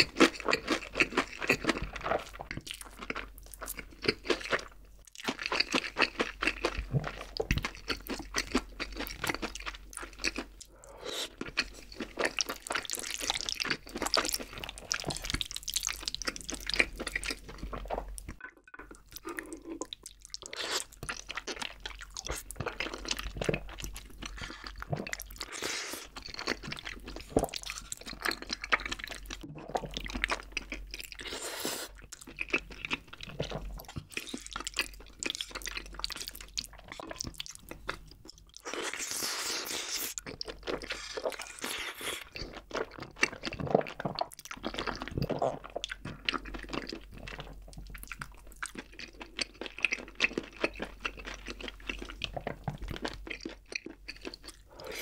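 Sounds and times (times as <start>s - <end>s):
wet chewing and smacking: 0.0s - 55.0s
noodle slurp: 31.1s - 32.0s, 38.8s - 40.2s, 54.5s - 55.0s.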